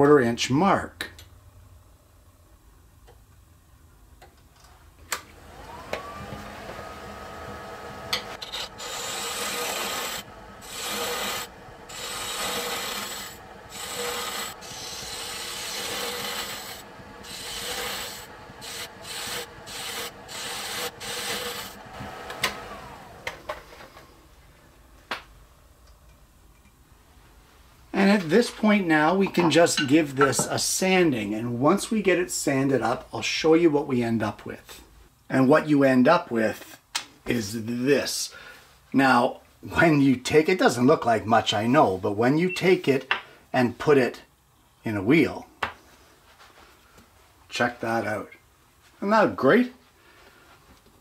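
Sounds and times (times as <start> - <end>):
wood lathe whine: 5.3 - 24.4
turning tool scraping wood: 5.5 - 24.1.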